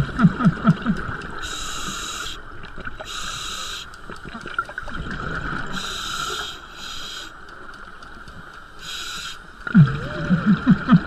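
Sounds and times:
exhaled bubbles gurgling: 0.0 - 1.6, 9.6 - 11.0
regulator inhalation hisses: 1.4 - 4.0, 5.7 - 7.4, 8.8 - 9.5.

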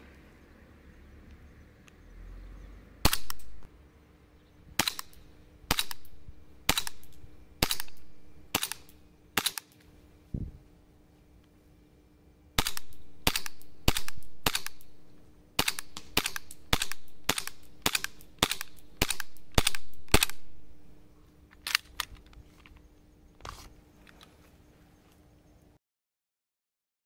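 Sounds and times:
airsoft pistol shots: 3.0 - 3.7, 4.8 - 9.7, 12.6 - 14.9, 15.6 - 20.4.

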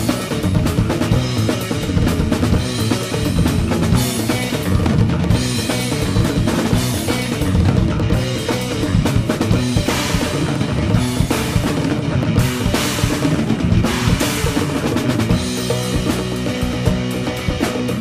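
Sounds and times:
band song playing: 0.0 - 18.0
drum kit beat: 0.0 - 18.0.

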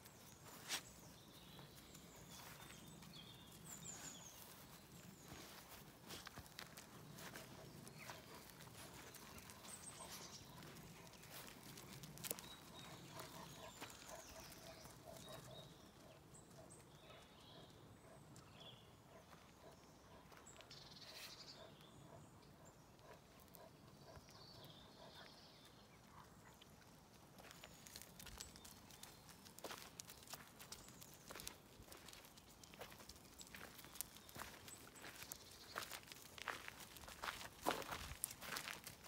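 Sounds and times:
footsteps crunching on gravel: 0.1 - 14.9, 27.4 - 39.0.

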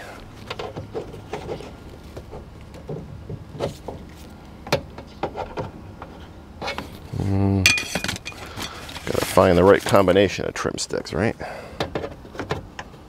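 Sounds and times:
plastic scraping on car door: 0.4 - 4.3.

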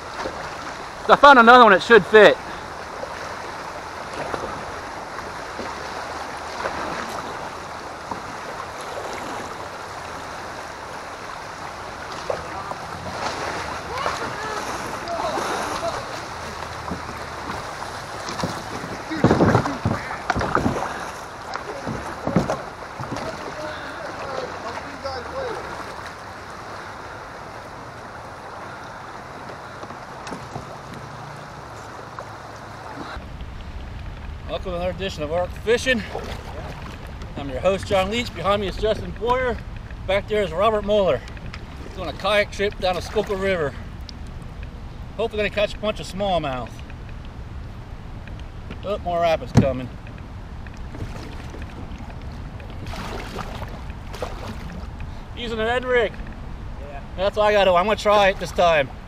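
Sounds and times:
river water flowing: 0.0 - 59.0
faint clicks: 39.0 - 40.1, 46.6 - 48.9, 49.9 - 52.8.

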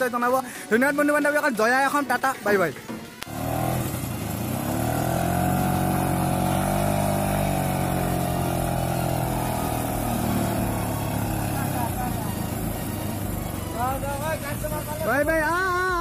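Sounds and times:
scooter engine running: 3.2 - 16.0.

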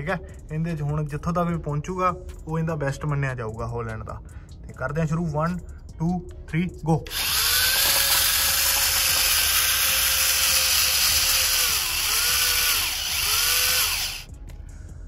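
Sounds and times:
toy tractor motor whining: 7.1 - 14.3.

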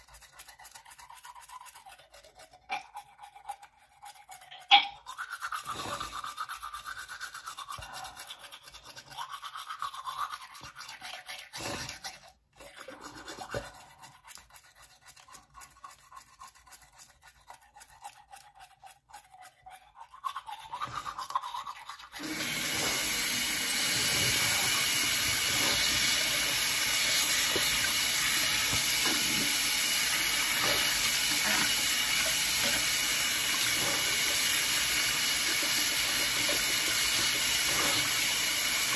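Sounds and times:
toothbrush scrubbing teeth: 0.0 - 38.9
tap water running into sink: 22.2 - 38.9.

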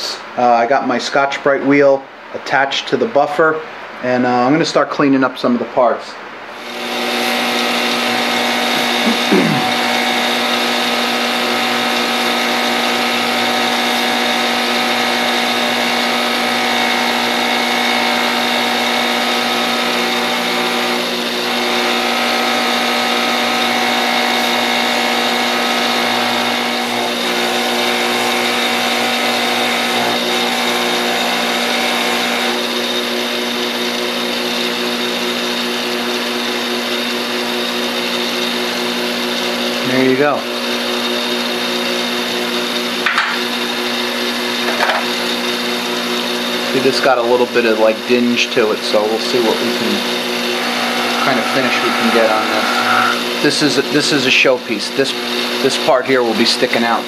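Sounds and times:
bench buffer motor humming: 6.5 - 57.0
steel shaft polishing on wheel: 6.6 - 32.6, 46.5 - 54.9.

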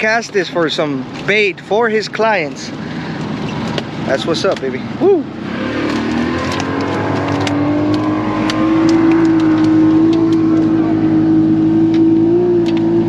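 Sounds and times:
boat engine running: 5.9 - 13.0.

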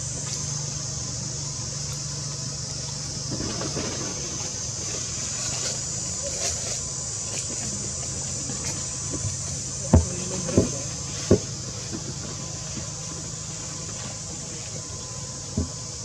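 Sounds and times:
outdoor hiss and low rumble: 0.0 - 16.0.

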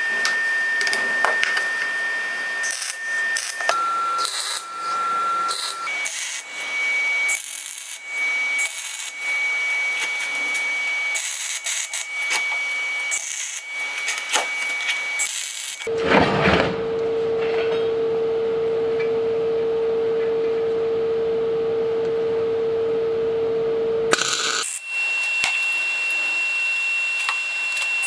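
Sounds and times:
steady high whine: 0.0 - 28.0.

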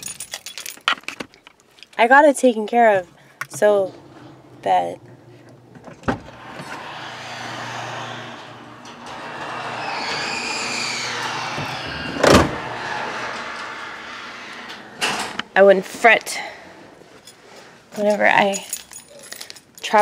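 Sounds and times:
car and road noise: 3.6 - 15.7.

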